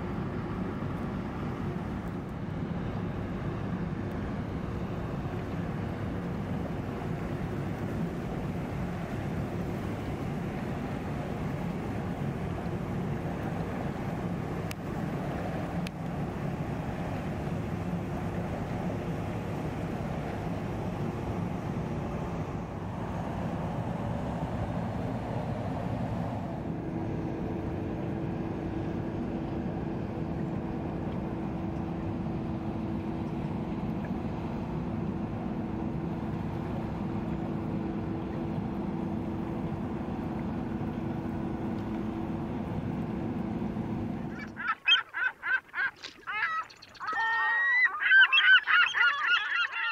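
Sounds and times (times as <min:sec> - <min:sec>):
geese honking: 0:44.4 - 0:49.9.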